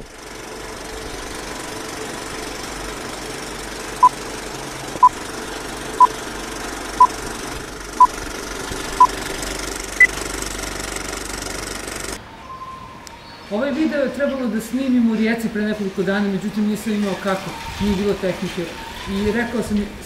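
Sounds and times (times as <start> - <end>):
film projector rattling: 0.0 - 12.2.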